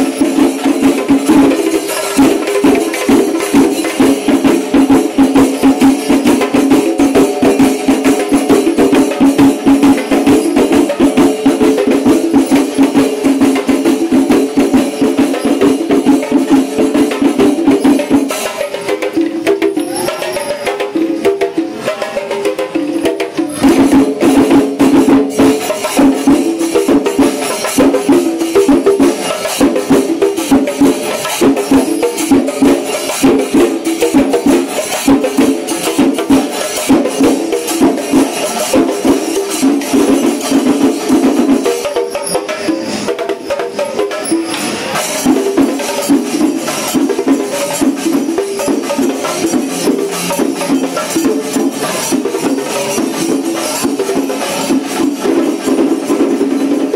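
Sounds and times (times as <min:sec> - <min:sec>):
fast percussion music: 0:00.0 - 0:56.9.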